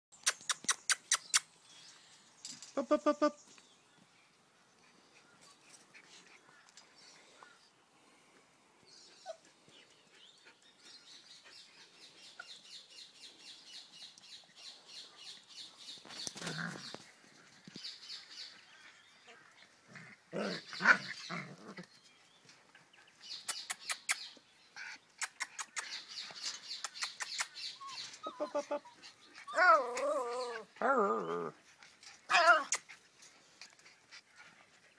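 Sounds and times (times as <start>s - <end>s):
puppies playing and wrestling: 0.1s - 34.9s.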